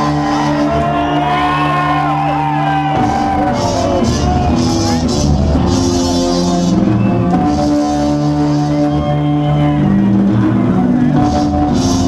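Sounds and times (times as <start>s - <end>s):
crowd shouting: 0.0s - 5.5s
electronic backing music: 0.0s - 12.0s.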